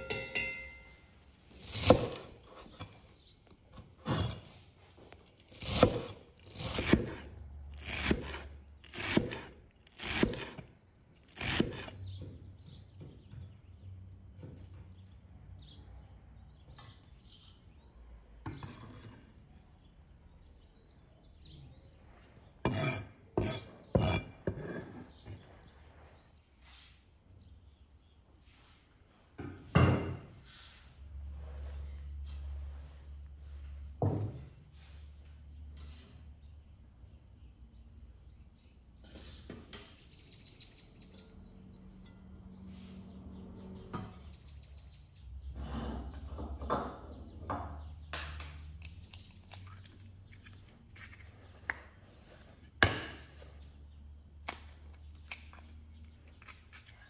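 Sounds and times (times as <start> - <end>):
cooking utensils knocking and clinking: 0.0 - 1.1.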